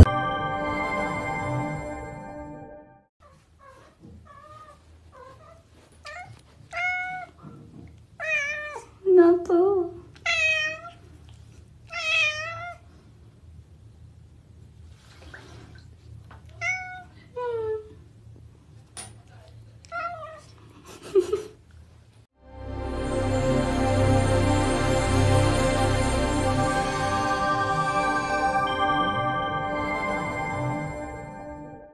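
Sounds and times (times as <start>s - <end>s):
cat meowing: 3.6s - 7.4s, 8.2s - 8.9s, 10.2s - 11.0s, 11.9s - 12.8s, 16.5s - 17.2s.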